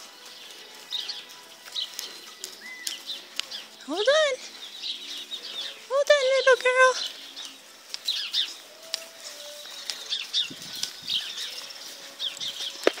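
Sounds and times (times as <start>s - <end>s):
small birds chirping: 0.0s - 13.0s
sharp clicks: 1.7s - 3.6s.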